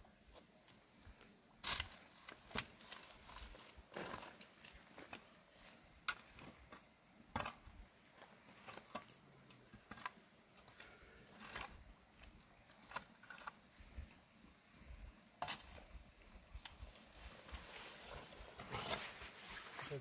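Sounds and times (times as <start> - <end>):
spade digging into stony earth: 1.6 - 5.0, 6.0 - 11.9
soil shaken through sieve: 17.4 - 20.0.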